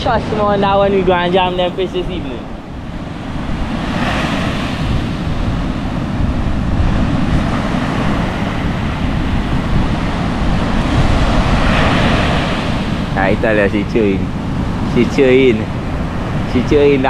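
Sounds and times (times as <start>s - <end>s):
wind buffeting microphone: 0.0s - 17.0s
surf breaking on beach: 0.1s - 17.0s.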